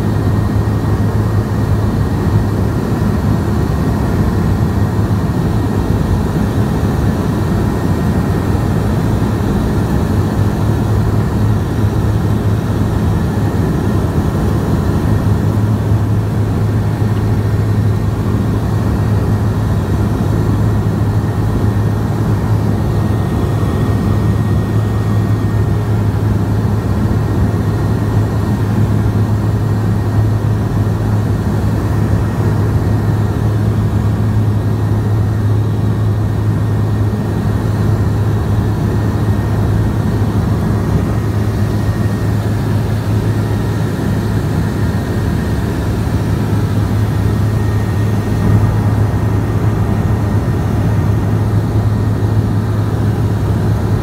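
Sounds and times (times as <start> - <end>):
propeller engine hum: 0.0 - 54.0
rushing airflow: 37.6 - 54.0.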